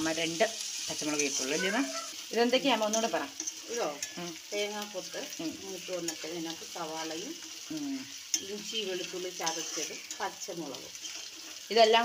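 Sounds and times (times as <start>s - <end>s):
vegetables sizzling in oil: 0.0s - 12.0s
metal spatula scraping pan: 1.0s - 4.4s, 7.3s - 11.7s.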